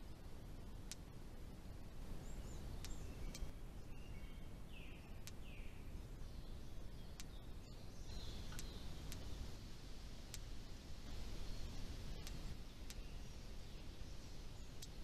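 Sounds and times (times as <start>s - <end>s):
low steady rumble: 0.0s - 15.0s
sharp clicks: 0.9s - 1.1s, 2.8s - 3.5s, 7.2s - 7.4s, 8.5s - 9.3s, 10.3s - 10.5s, 12.2s - 13.1s, 14.8s - 15.0s
bird chirps: 2.2s - 9.6s, 11.1s - 15.0s.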